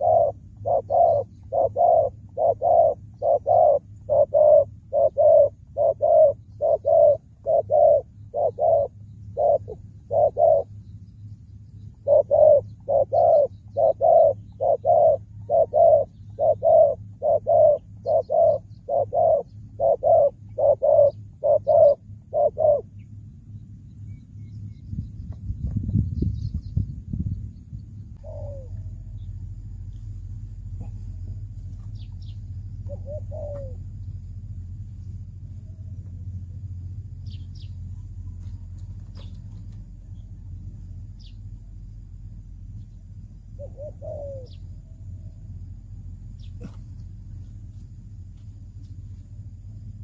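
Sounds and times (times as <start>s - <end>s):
dove cooing: 0.0s - 10.8s, 11.9s - 23.1s, 28.2s - 29.7s, 30.6s - 34.0s, 43.5s - 45.6s.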